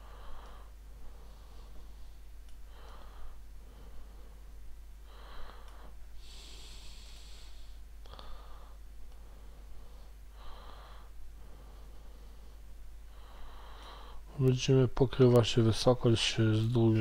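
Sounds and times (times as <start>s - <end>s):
person breathing: 0.0s - 14.4s
low mains hum: 0.0s - 17.0s
faint clicks: 2.4s - 3.0s.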